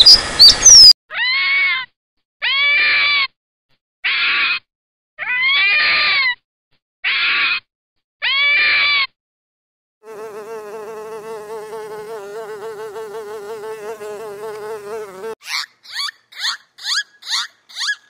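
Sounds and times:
wasp buzzing: 10.0s - 15.4s.

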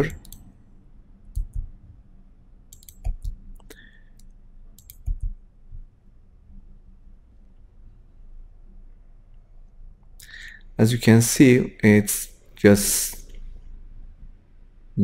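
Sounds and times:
computer mouse clicking: 0.0s - 0.5s, 1.3s - 1.7s, 2.7s - 5.4s
faint low hum: 0.0s - 15.0s.

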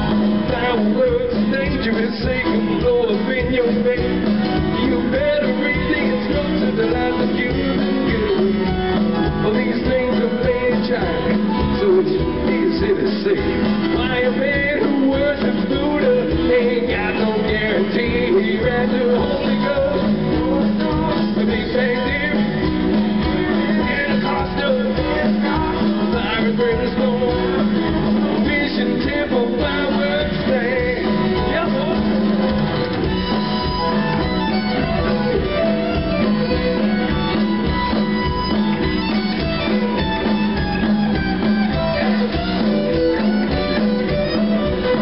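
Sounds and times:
drum beat: 0.0s - 45.0s
guitar: 0.0s - 45.0s
fiddle: 31.1s - 45.0s.

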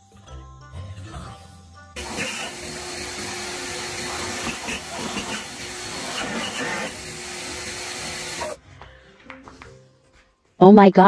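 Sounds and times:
leaf blower hissing: 2.0s - 8.6s.

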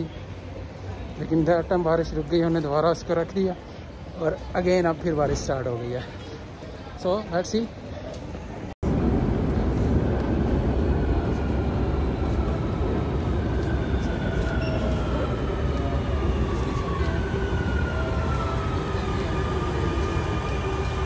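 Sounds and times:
train wheels rumbling on rails: 8.8s - 21.0s.

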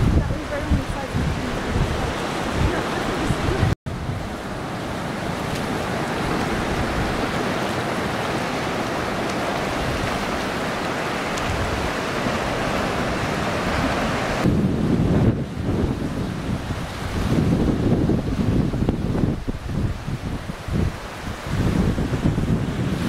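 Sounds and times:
ocean surf on sandy beach: 0.0s - 23.0s
wind buffeting microphone: 0.0s - 23.0s.

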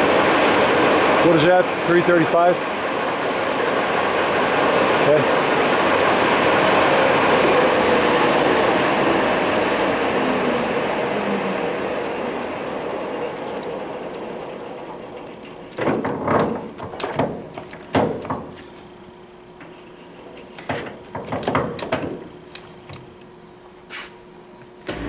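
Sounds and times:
falling gear whine: 7.0s - 15.6s.

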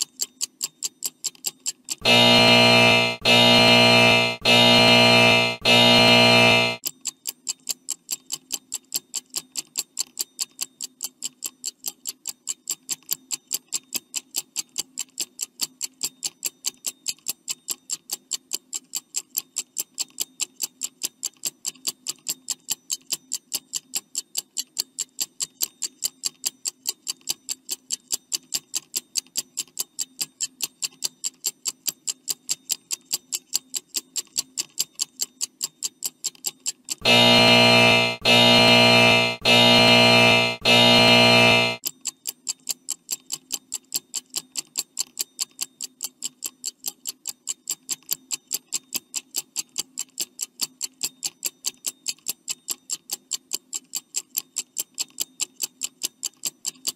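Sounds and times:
faint low hum: 37.0s - 41.8s.

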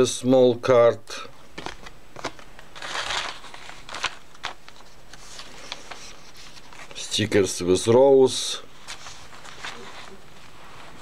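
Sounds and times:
paper pages turning: 1.6s - 7.2s, 8.8s - 11.0s
paper rustle: 1.6s - 7.3s, 8.8s - 11.0s.

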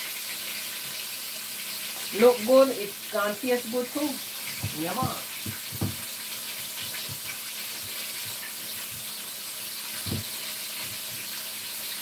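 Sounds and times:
chicken sizzling in hot oil: 0.0s - 12.0s
soft knock: 4.6s - 6.0s.

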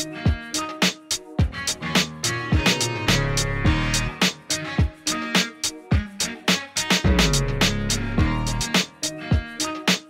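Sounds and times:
music with drum beat: 0.0s - 10.0s.

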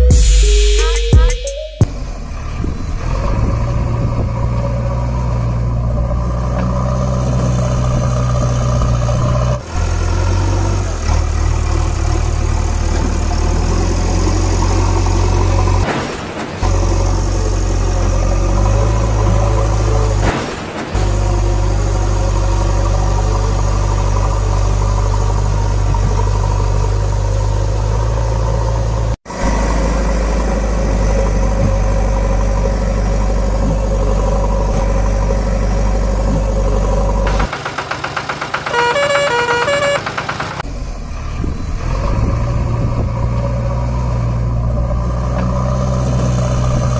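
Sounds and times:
heavy diesel engine droning: 0.0s - 46.9s.

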